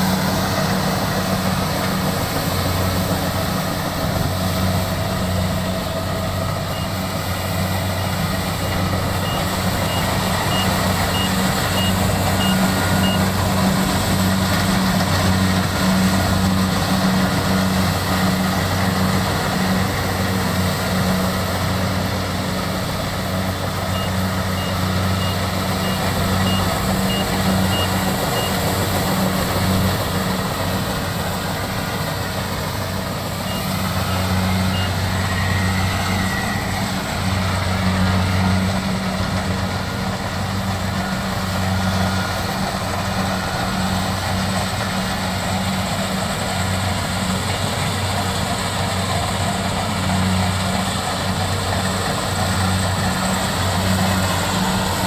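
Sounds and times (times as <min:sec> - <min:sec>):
combine harvester running: 0:00.0 - 0:55.0
high beeping: 0:04.2 - 0:14.6, 0:23.3 - 0:29.5, 0:33.4 - 0:36.8.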